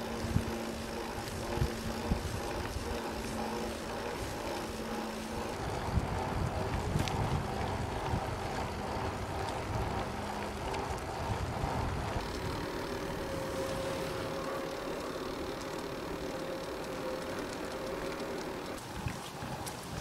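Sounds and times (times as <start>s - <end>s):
bicycle tyres on asphalt: 0.0s - 20.0s
wind on microphone: 5.5s - 14.8s
faint steady tone: 12.1s - 18.8s.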